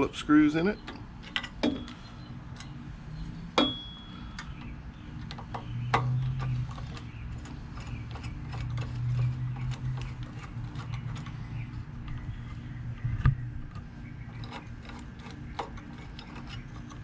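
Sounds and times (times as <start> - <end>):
low hum: 0.0 - 17.0
screwdriver clicks and scrapes: 5.2 - 11.4, 13.7 - 17.0.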